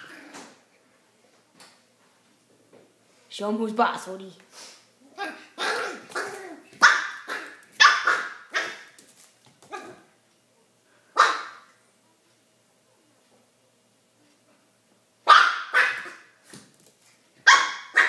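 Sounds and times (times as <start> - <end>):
puppy barking: 5.2 - 8.9, 9.7 - 10.1, 11.2 - 11.7, 15.2 - 16.3, 17.4 - 18.0.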